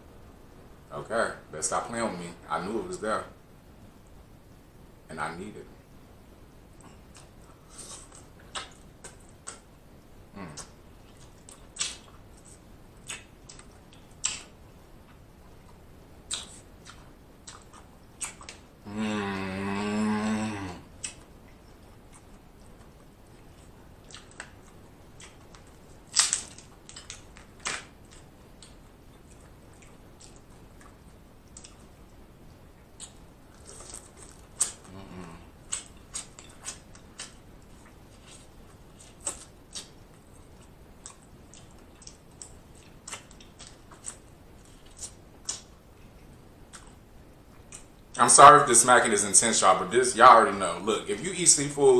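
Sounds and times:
man chewing and lip smacking: 6.8s - 19.5s, 20.9s - 48.2s.

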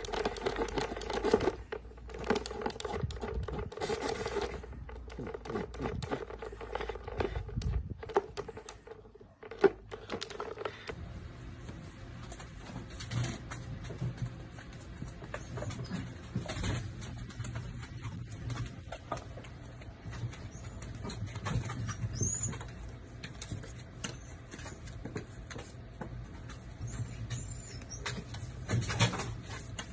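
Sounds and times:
dog pawing plastic sprinkler: 0.0s - 11.0s.

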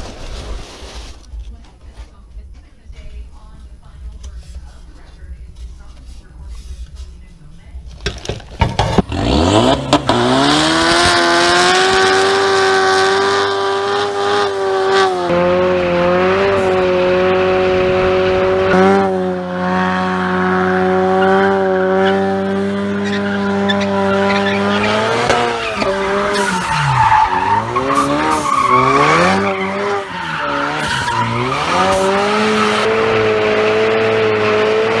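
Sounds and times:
car engine revving: 8.2s - 35.0s
tires squealing: 8.8s - 35.0s.

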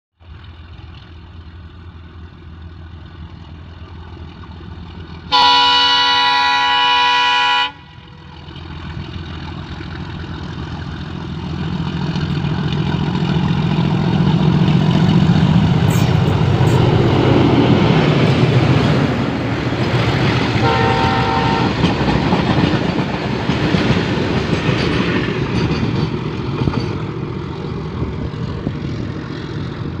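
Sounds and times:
diesel locomotive engine rumble: 0.2s - 30.0s
locomotive horn: 5.3s - 8.4s, 20.5s - 22.2s
freight wagons rolling past: 7.9s - 30.0s.

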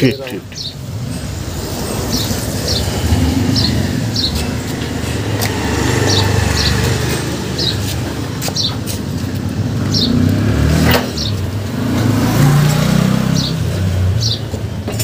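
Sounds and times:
small bird chirping: 0.3s - 0.9s, 2.0s - 4.8s, 5.5s - 8.9s.

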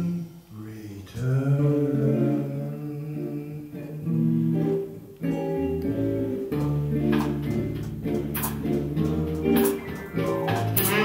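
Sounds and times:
man singing: 0.0s - 6.6s
piano: 1.6s - 11.0s
guitar melody: 1.7s - 11.0s
upright bass: 5.4s - 11.0s.

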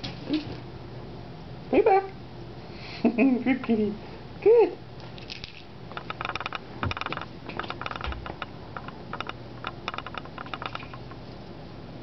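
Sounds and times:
cat toy rattling and clicking: 5.2s - 11.2s.

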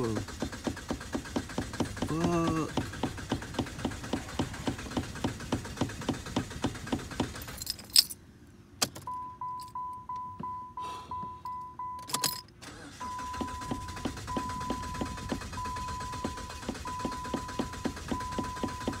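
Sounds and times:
starter motor cranking engine: 0.0s - 7.6s, 12.6s - 19.0s
dashboard chime beeping: 9.1s - 12.3s, 13.0s - 19.0s
car key clicks: 11.5s - 12.6s.

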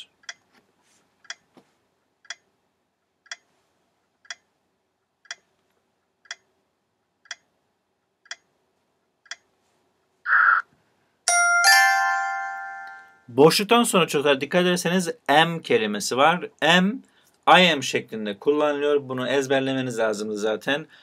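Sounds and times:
clock ticking: 0.0s - 0.5s, 1.2s - 3.6s, 4.2s - 9.6s
bell-like chime: 11.3s - 13.3s.

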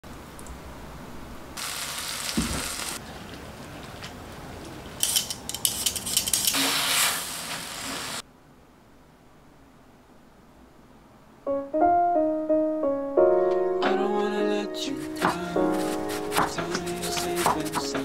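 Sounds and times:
hiss: 1.6s - 3.0s, 6.4s - 8.2s
onion rings sizzling in a pan: 1.6s - 3.0s, 6.5s - 8.2s
wooden spatula stirring: 15.1s - 18.0s.

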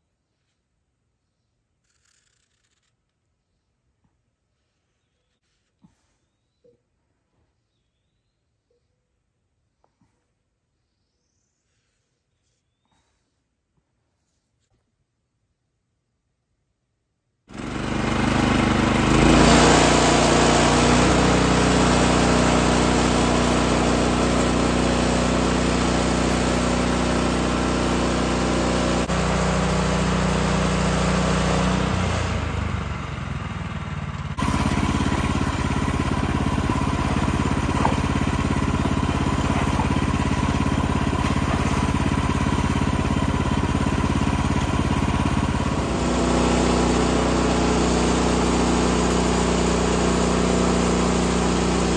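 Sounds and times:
gasoline engine running: 17.5s - 51.9s.

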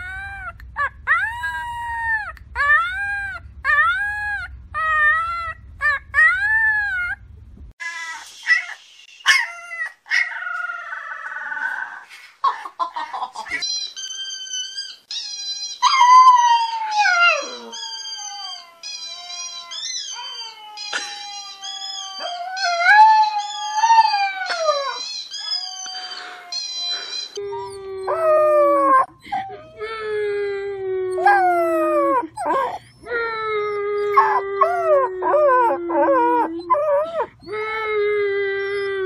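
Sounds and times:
puppy howling: 0.0s - 7.2s, 14.0s - 39.0s
puppy squeaky cries: 13.5s - 30.0s.

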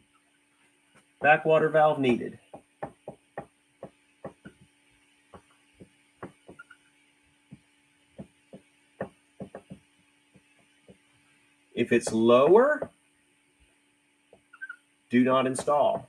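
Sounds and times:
faint steady hum: 0.0s - 16.0s
marker writing on whiteboard: 2.0s - 6.8s, 7.4s - 11.1s, 11.9s - 13.0s.

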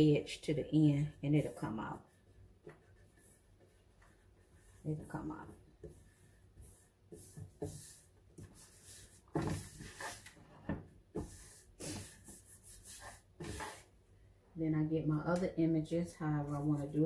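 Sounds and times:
hands rubbing on paper: 1.2s - 10.5s, 11.2s - 13.9s.

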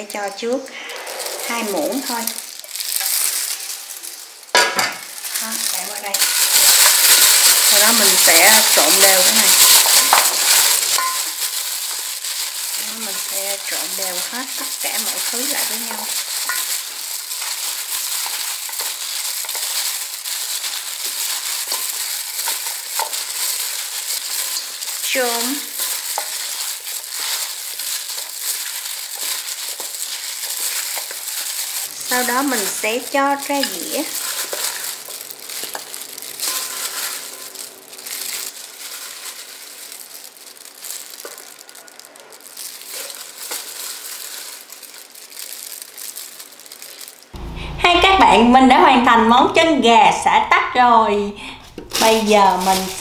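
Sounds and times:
plastic glove crinkling: 0.0s - 47.4s, 51.4s - 53.0s
wet squishing and rustling: 0.0s - 47.4s, 51.6s - 53.0s
food pieces clicking together: 5.0s - 47.4s.

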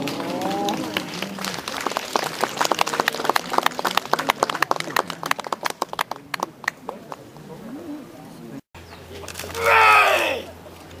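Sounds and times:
crowd clapping: 0.0s - 7.2s.

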